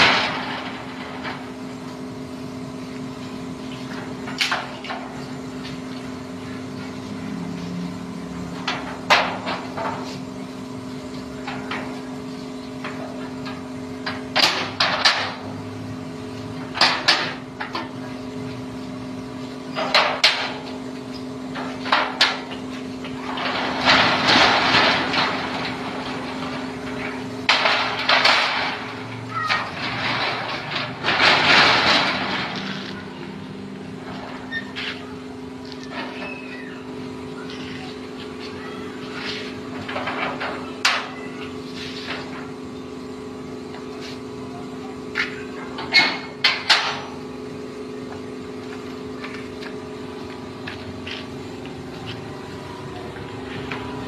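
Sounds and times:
metal gate clanking: 0.0s - 1.6s, 21.5s - 42.6s, 45.1s - 47.3s
metal gate rattling: 0.0s - 1.8s, 21.5s - 42.7s, 45.2s - 47.4s.

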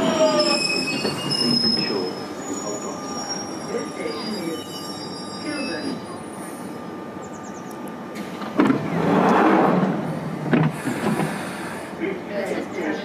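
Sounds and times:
train door clunk: 8.2s - 9.0s, 10.4s - 11.4s.

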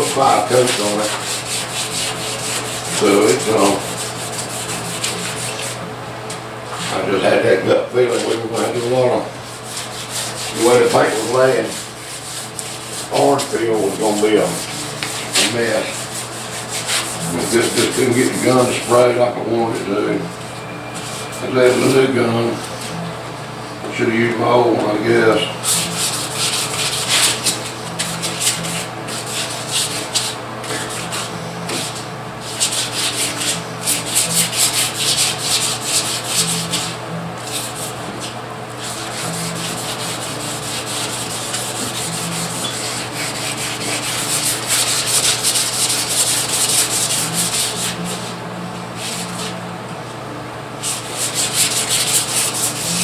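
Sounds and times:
sandpaper rubbing by hand: 0.0s - 5.8s, 8.2s - 19.2s, 25.6s - 48.3s, 49.0s - 49.6s, 50.8s - 53.0s
steady low hum: 0.0s - 53.0s.

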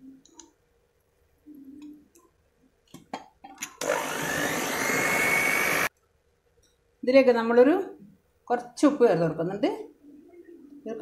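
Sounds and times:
electric hand mixer whining: 3.8s - 5.9s.

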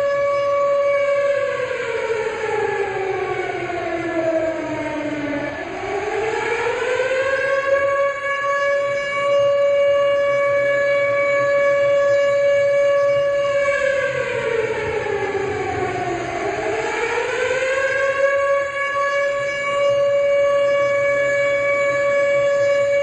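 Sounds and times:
siren falling and rising pitch: 0.0s - 23.0s
siren steady tone: 0.0s - 23.0s.

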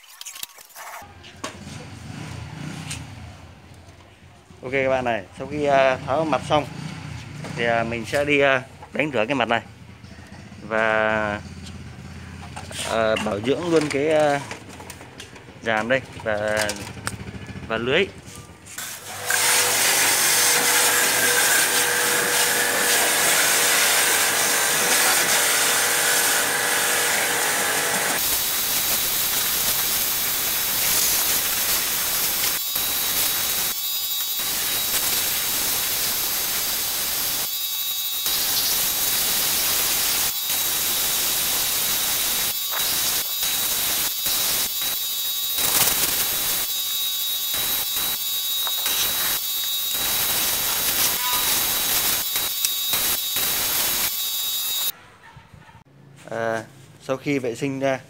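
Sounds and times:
pressure washer spraying water: 18.8s - 54.9s.

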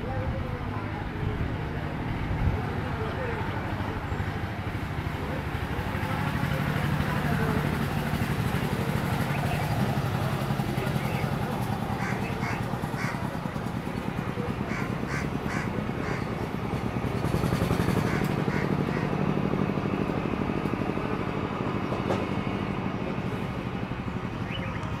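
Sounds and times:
propeller plane droning: 0.0s - 25.0s
bird calls: 10.9s - 13.2s, 14.7s - 16.5s, 18.0s - 19.2s, 24.4s - 25.0s.

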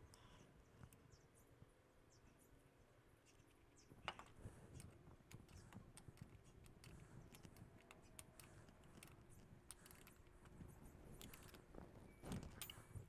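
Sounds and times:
small metal parts clicking: 4.2s - 13.0s.

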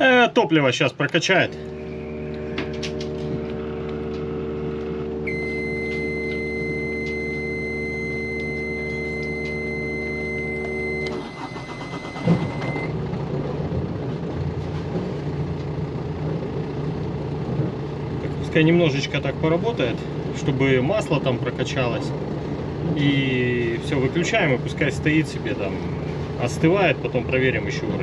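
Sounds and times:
diesel engine running: 0.0s - 28.0s
fuel pump electric hum: 0.0s - 28.0s
high warning beep: 5.2s - 12.9s.

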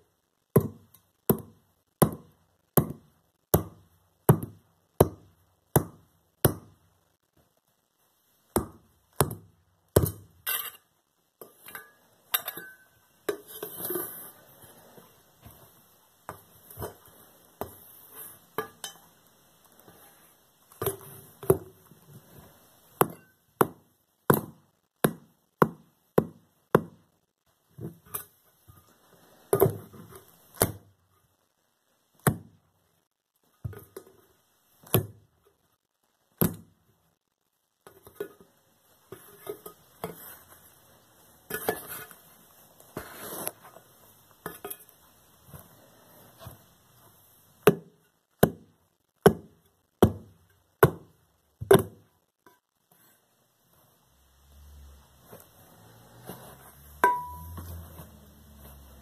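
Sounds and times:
heels stamping on metal teapot: 57.0s - 57.8s.

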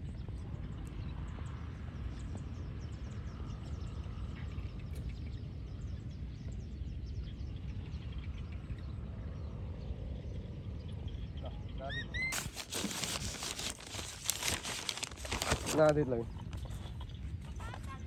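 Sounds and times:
steady low rumble: 0.0s - 11.9s
small birds chirping: 0.0s - 18.0s.

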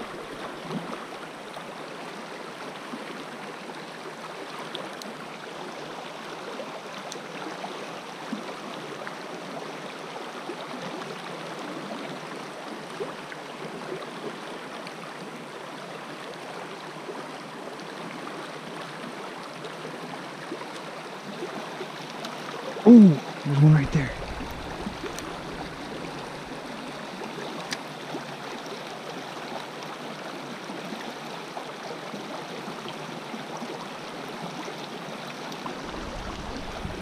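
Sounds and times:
creek water running over rocks: 0.0s - 37.0s.

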